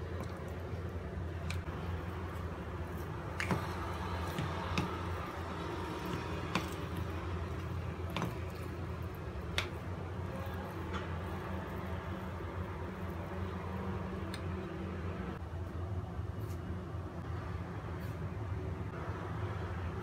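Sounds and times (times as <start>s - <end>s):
spoon mashing soft dough: 0.0s - 14.5s.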